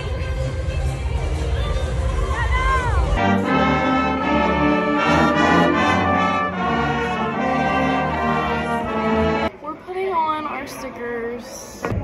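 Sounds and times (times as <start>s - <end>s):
brass band playing: 3.2s - 9.5s.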